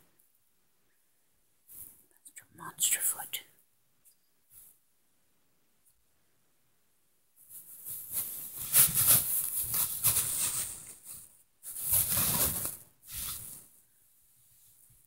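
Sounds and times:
duvet rustling: 7.4s - 13.8s.

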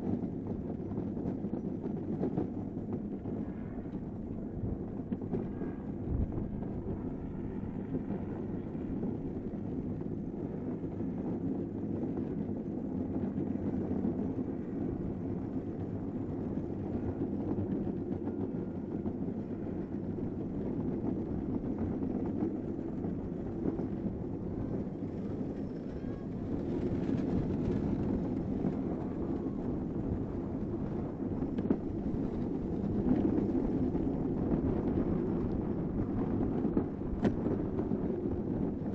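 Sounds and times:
wind on microphone: 0.0s - 38.9s
kart wheels rumbling on pavement: 8.9s - 38.9s.

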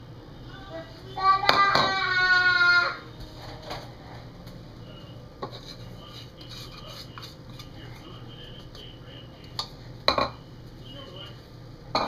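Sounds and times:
steady low hum: 0.0s - 12.0s
bowls and utensils clinking: 9.6s - 10.4s.

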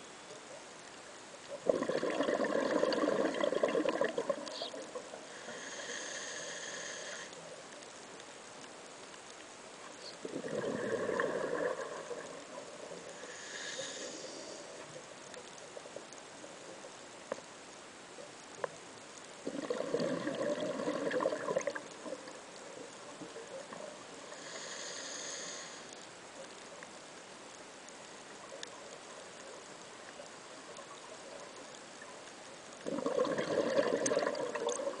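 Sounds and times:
faint underwater hiss: 0.0s - 35.0s
bubbling underwater exhalation: 1.6s - 5.1s, 10.2s - 12.5s, 19.4s - 22.3s, 32.8s - 35.0s
regulator hissing inhalation: 5.3s - 7.3s, 13.2s - 14.7s, 24.3s - 25.9s.

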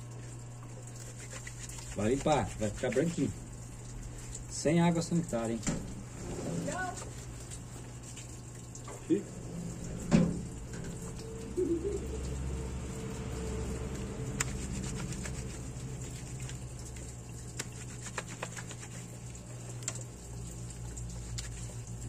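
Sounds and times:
water dripping: 0.0s - 6.2s, 6.9s - 22.0s
low steady hum: 0.0s - 22.0s
wet cloth scrubbed by hand: 0.7s - 4.6s, 6.0s - 8.6s, 13.0s - 22.0s.

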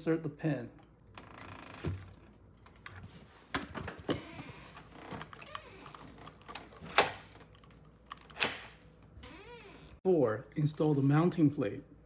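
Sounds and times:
lock parts clicking and knocking: 4.9s - 8.8s.

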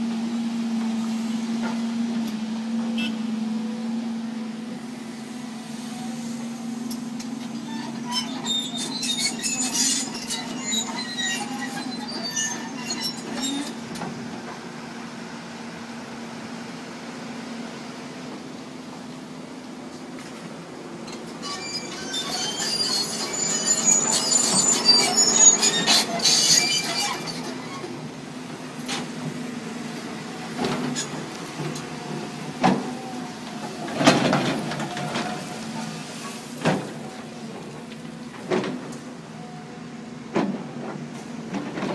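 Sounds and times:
excavator engine rumble: 0.0s - 41.9s
heavy diesel machinery running: 0.0s - 41.9s
metallic clinks and squeals: 7.6s - 13.8s, 21.4s - 27.8s.

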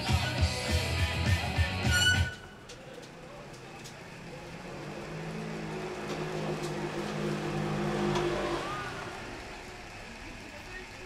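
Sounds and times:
vehicle engine passing: 3.2s - 11.0s.

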